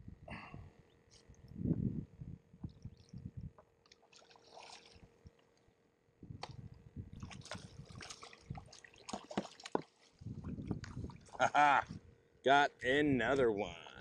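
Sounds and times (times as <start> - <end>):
fish thrashing splashes: 3.9 - 5.1, 7.2 - 11.5.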